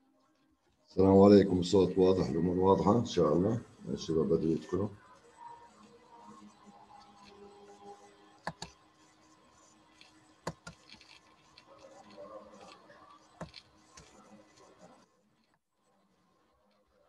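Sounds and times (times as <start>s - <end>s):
computer mouse clicks: 8.4s - 8.8s, 9.9s - 15.6s.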